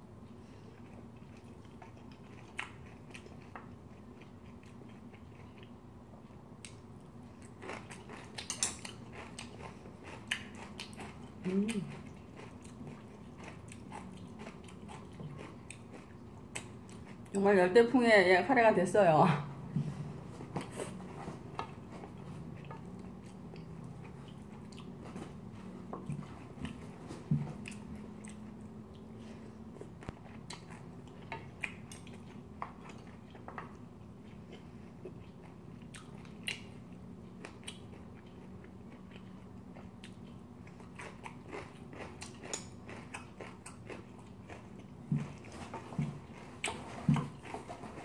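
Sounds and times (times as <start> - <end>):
chewing food: 0.1 - 17.4, 19.6 - 48.0.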